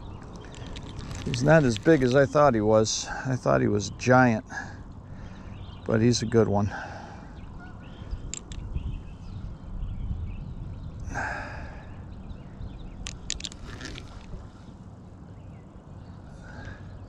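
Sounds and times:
rod handling rumble: 0:00.0 - 0:03.0, 0:08.2 - 0:08.8, 0:13.0 - 0:14.9
reel clicks: 0:00.2 - 0:02.3, 0:08.2 - 0:08.7, 0:13.0 - 0:14.5
person exhaling: 0:11.1 - 0:12.0.

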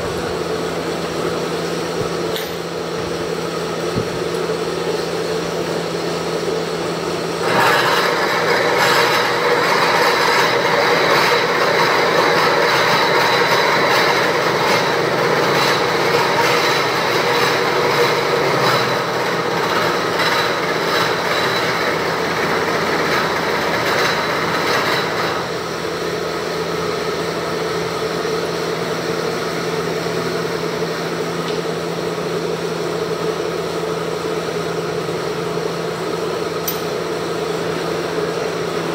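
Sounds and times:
milling machine humming: 0:00.0 - 0:38.9
gritty metal cutting noise: 0:07.4 - 0:25.9.

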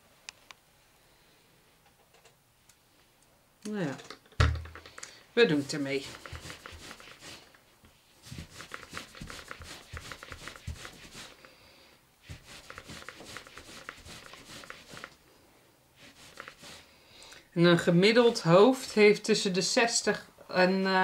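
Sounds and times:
scratchy rubbing on towel: 0:05.5 - 0:11.4, 0:12.2 - 0:15.2, 0:16.0 - 0:16.9.

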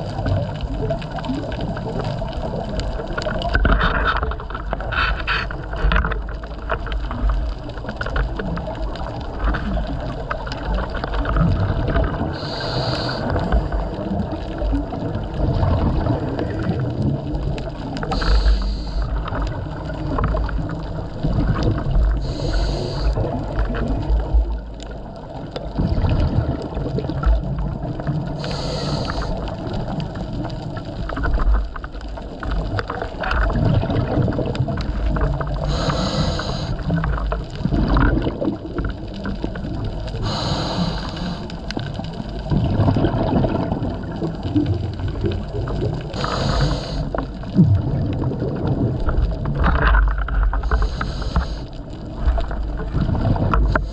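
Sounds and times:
low rumble of water: 0:00.0 - 0:53.9
underwater bubbles: 0:00.0 - 0:53.9
diver breathing through regulator: 0:04.8 - 0:05.7, 0:12.2 - 0:14.0, 0:18.0 - 0:19.3, 0:22.2 - 0:23.4, 0:28.3 - 0:29.6, 0:35.6 - 0:37.0, 0:40.2 - 0:41.7, 0:46.1 - 0:47.4, 0:50.5 - 0:52.0, 0:53.5 - 0:53.9.

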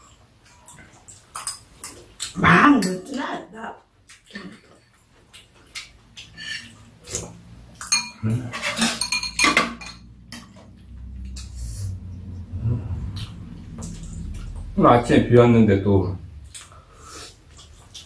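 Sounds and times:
spoons clinking against ceramic bowls: 0:01.3 - 0:02.0, 0:06.2 - 0:06.8, 0:07.8 - 0:10.6.

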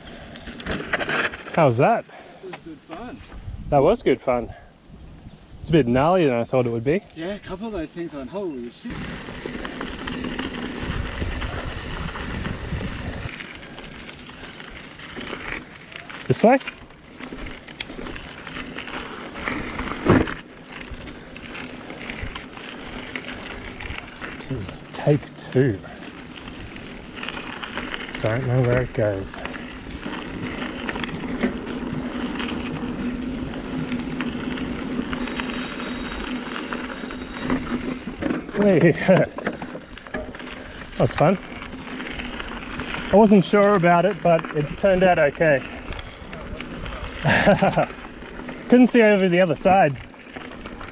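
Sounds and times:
bike tyres on gravel: 0:00.0 - 0:04.4, 0:05.8 - 0:50.9
bike frame and chain rattling: 0:00.4 - 0:01.8, 0:08.9 - 0:50.9
wind on microphone: 0:03.2 - 0:03.9, 0:09.9 - 0:13.3
steady buzz: 0:35.2 - 0:38.2.

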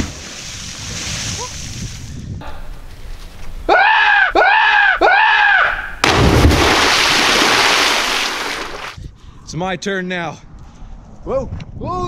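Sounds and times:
heavy splash into water: 0:06.0 - 0:09.0.

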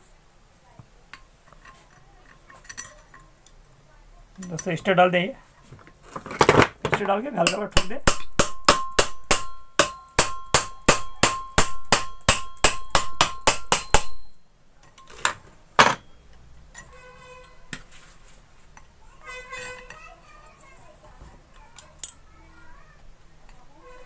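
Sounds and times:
hammer tapping on metal: 0:07.4 - 0:14.4.

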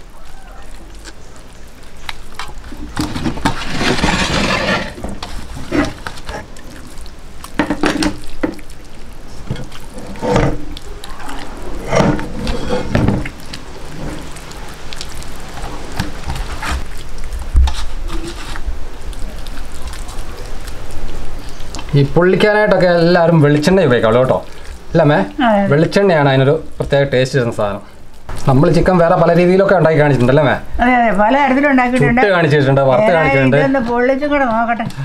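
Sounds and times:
wet squishing of paste: 0:00.0 - 0:27.0.

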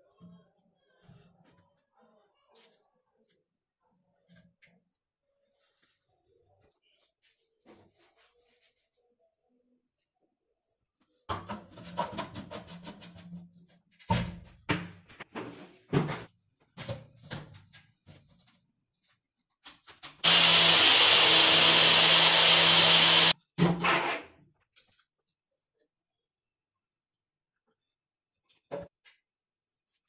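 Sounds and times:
blender motor whirring: 0:20.2 - 0:23.4.

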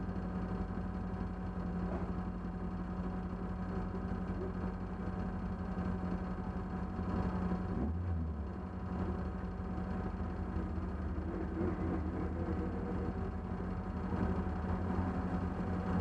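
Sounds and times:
race car engine idling: 0:00.0 - 0:16.0.

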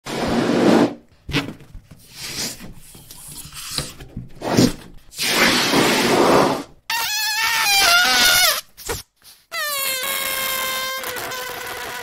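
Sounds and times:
scratchy hissy balloon bursts: 0:04.4 - 0:12.0.

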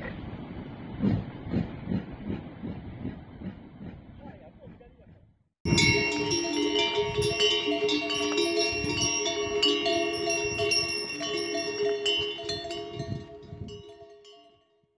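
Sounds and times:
animal neck bells clanking: 0:05.7 - 0:14.6.

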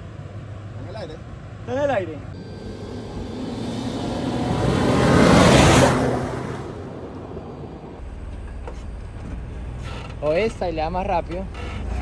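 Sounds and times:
low engine rumble: 0:02.3 - 0:09.8
vehicle driving past on dirt: 0:02.4 - 0:08.0.

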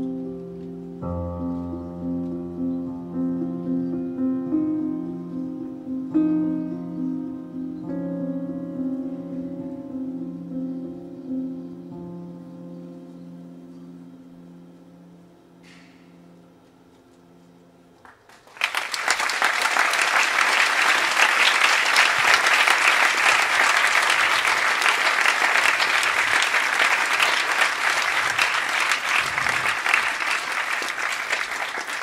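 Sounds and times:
audience applause: 0:18.1 - 0:32.0.

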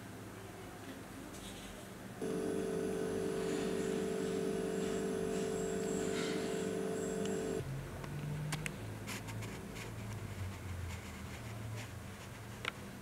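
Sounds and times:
steady humming tone: 0:02.2 - 0:07.6.

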